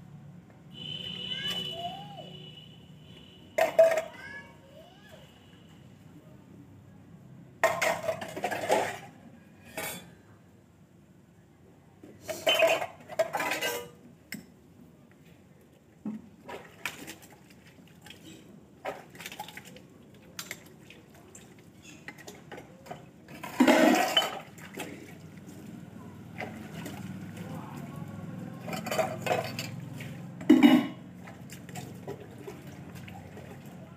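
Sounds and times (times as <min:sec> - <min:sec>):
steel dishes clinking: 0:12.4 - 0:14.0, 0:23.4 - 0:24.4, 0:28.6 - 0:29.8
water splashing: 0:16.4 - 0:22.2, 0:23.4 - 0:33.9.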